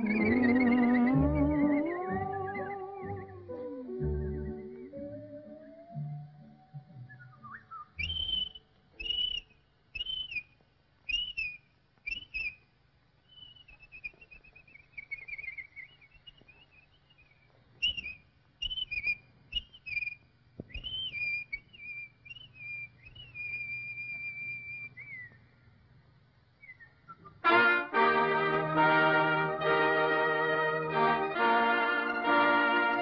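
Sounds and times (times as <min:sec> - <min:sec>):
whistled bird calls: 0:00.0 - 0:12.7, 0:13.3 - 0:25.6, 0:26.6 - 0:27.5.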